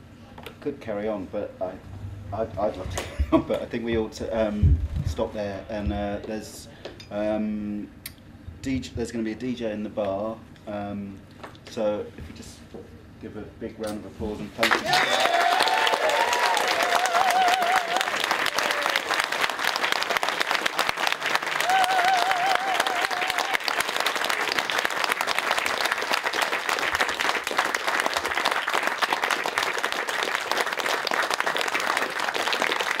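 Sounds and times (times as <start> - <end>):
audience applauding: 14.6 - 33.0.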